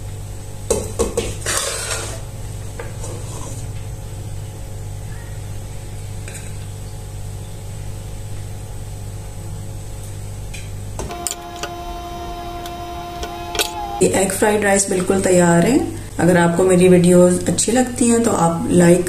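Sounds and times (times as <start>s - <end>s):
steady low hum: 11.0s - 14.1s.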